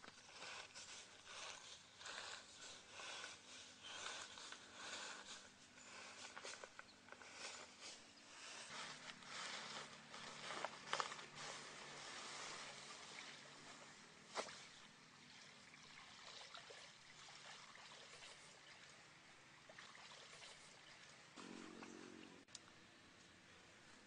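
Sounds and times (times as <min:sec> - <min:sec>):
stream water splashing: 0:09.4 - 0:22.5.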